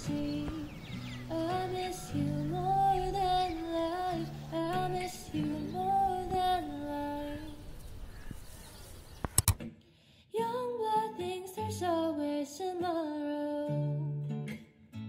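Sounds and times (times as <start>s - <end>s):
person singing over guitar: 0.0s - 7.8s
sharp clicks: 9.2s - 9.7s.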